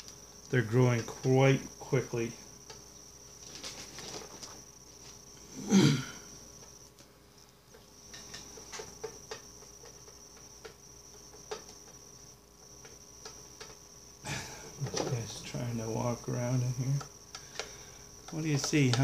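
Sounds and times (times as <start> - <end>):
cricket chirping: 0.0 - 19.0.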